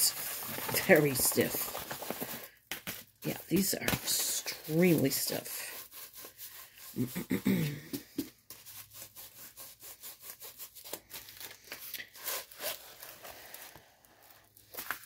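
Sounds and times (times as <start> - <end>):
plastic film rustling and crinkling: 0.0 - 6.8, 10.7 - 15.0.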